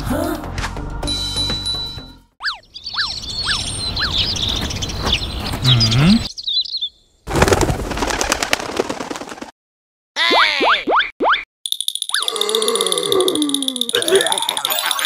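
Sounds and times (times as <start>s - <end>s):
birds chirping: 2.4s - 7.3s
pigeons wings flapping: 7.3s - 9.6s.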